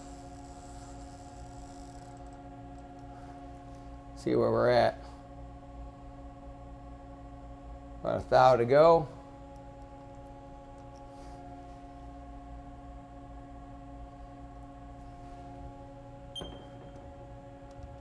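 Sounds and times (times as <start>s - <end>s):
milling machine humming: 0.0s - 4.2s.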